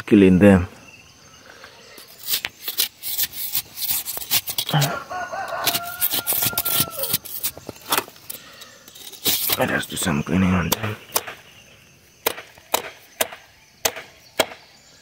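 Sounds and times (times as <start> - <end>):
rooster crowing: 4.7 - 7.3
sharp clicks and knocks: 10.6 - 11.4.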